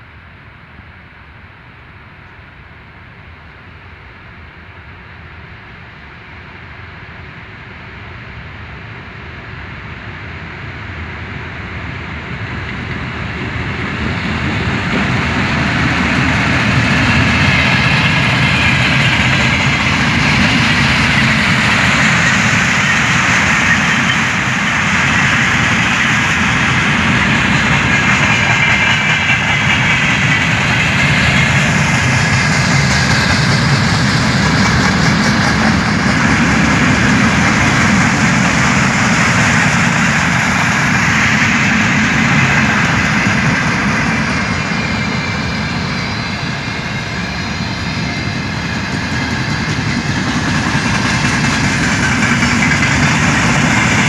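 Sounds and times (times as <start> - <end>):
freight train passing: 0.0 - 54.0
wheels rumbling on rail: 0.0 - 54.0.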